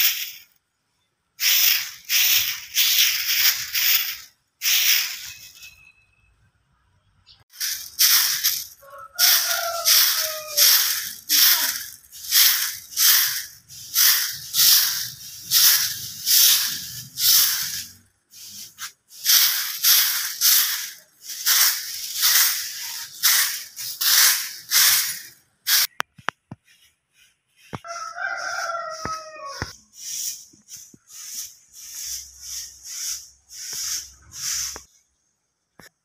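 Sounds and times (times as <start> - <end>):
broom sweeping leaves: 0.0 - 0.6, 1.4 - 5.8, 7.5 - 35.1.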